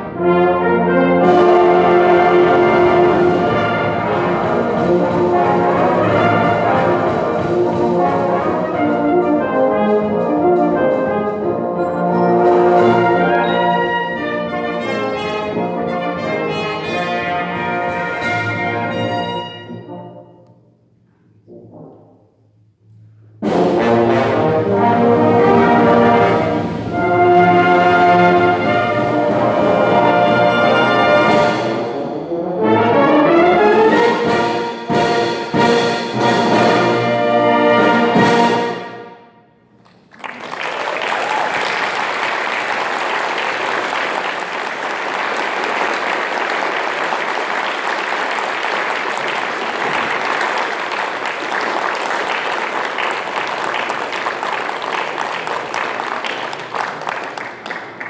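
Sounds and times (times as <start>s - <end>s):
brass band playing: 0.0s - 20.7s, 23.4s - 39.4s, 40.4s - 58.0s
audience applause: 39.8s - 58.0s.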